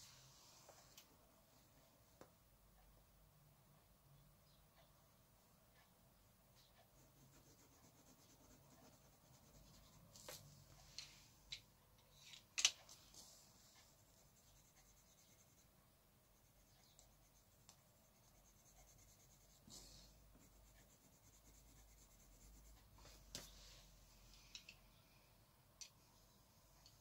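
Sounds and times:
pencil scratching on paper: 6.7s - 10.2s, 13.2s - 23.0s.

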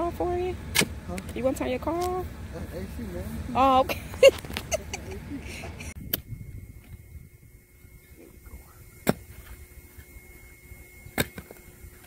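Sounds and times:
faint air conditioning hum: 0.0s - 12.0s
spade striking dry soil: 9.0s - 9.5s, 11.1s - 11.6s.

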